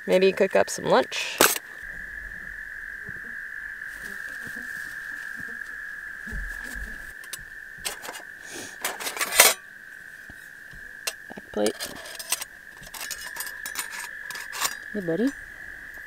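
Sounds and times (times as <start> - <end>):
chorus of small animals calling: 1.0 - 16.0
metal stove panels clinking: 11.1 - 14.8.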